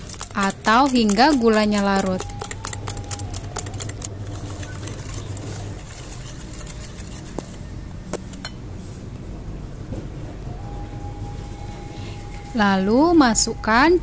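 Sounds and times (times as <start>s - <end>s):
whisk clicking in glass bowl: 0.0s - 7.6s.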